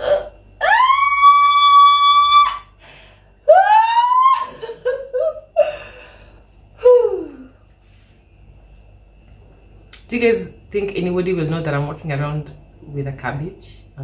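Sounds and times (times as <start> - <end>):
woman squealing: 0.0 - 2.8, 3.5 - 5.7.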